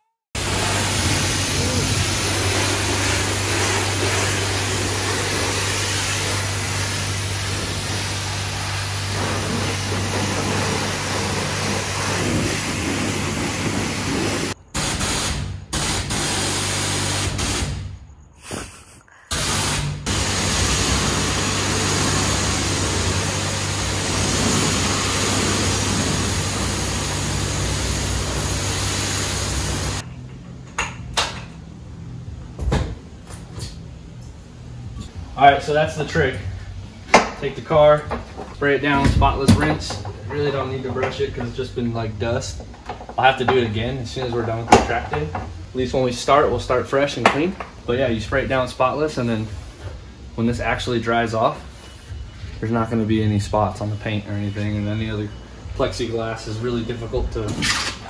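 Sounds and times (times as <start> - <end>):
high-pressure water spraying: 0.4 - 17.8, 19.3 - 30.0.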